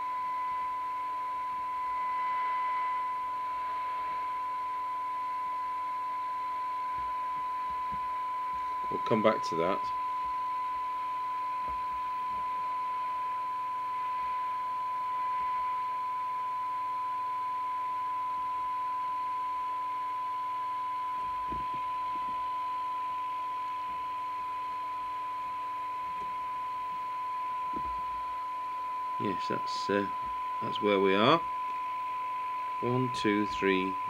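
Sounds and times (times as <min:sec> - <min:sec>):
radio speaker test tone: 0:00.0 - 0:34.0.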